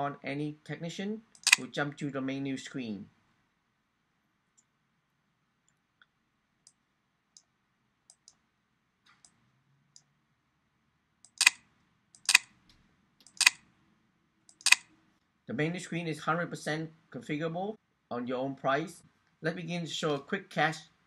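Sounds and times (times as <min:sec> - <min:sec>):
computer mouse button clicking: 0:11.3 - 0:11.6, 0:12.2 - 0:12.5, 0:13.2 - 0:13.6.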